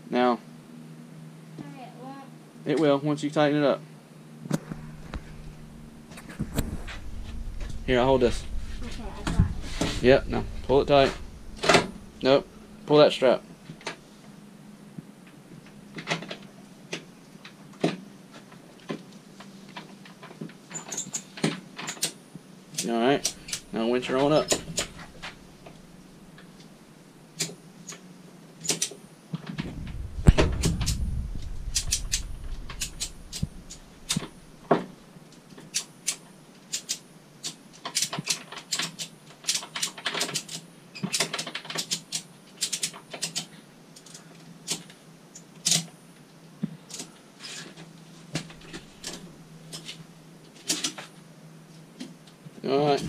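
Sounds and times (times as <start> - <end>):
low rumble with thud: 4.6 - 12.9, 23.2 - 26.2, 29.6 - 34.9.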